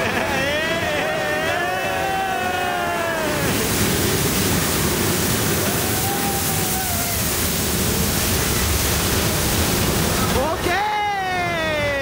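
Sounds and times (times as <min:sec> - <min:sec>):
drawn-out voice: 0:00.0 - 0:04.0
roller coaster rushing noise: 0:00.0 - 0:12.0.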